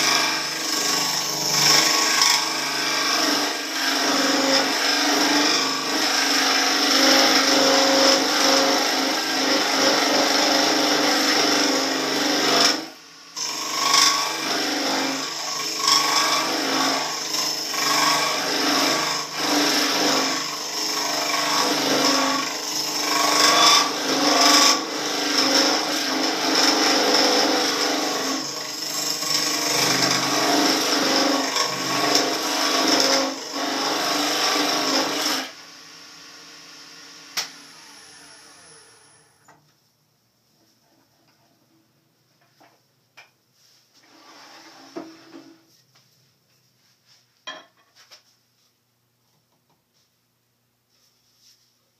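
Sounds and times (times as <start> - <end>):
turning tool scraping wood: 0.0 - 12.8, 13.4 - 35.5, 43.6 - 45.8
lathe running hum: 0.0 - 39.5.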